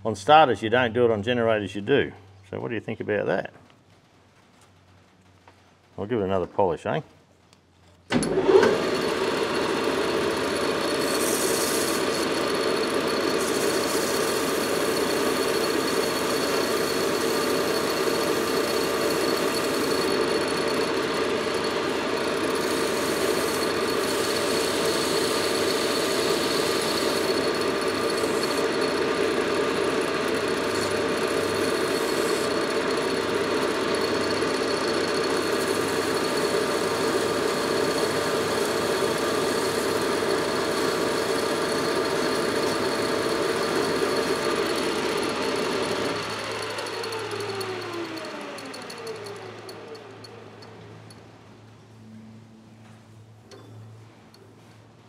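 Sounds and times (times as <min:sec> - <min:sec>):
metal lathe whining: 0:08.2 - 0:51.2.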